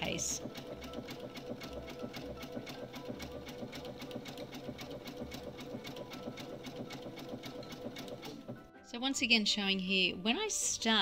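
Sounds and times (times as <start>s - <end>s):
sewing machine stitching: 0.0s - 8.7s.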